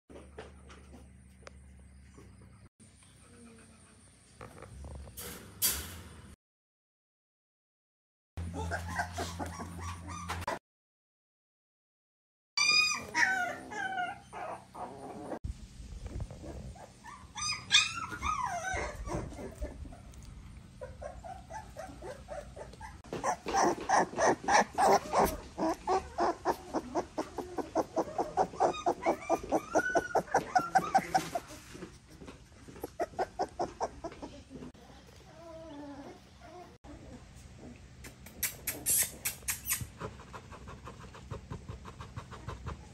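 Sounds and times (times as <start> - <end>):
puppies whining: 8.4 - 10.6, 12.6 - 15.4, 16.3 - 31.8, 32.6 - 40.0
puppies yelping: 8.4 - 10.6, 12.6 - 15.4, 16.8 - 31.6, 32.7 - 34.3.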